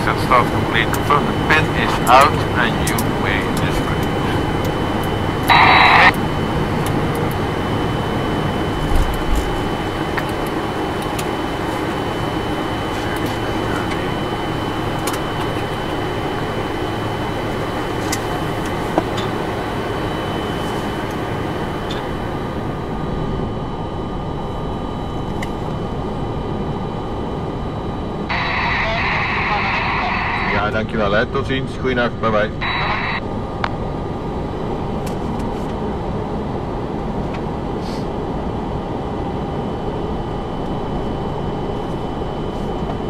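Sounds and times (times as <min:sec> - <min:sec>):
thin high whine: 0:00.0 - 0:06.4, 0:28.3 - 0:31.1, 0:32.4 - 0:33.3
cockpit hum and hiss: 0:00.0 - 0:43.0.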